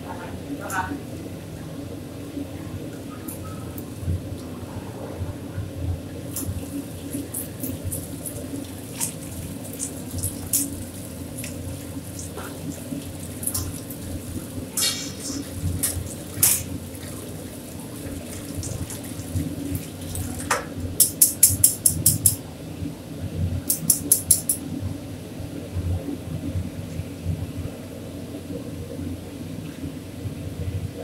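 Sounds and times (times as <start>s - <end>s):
steady hiss and hum: 0.0s - 31.0s
tongs clinking on steel tray: 21.0s - 22.4s, 23.7s - 24.6s.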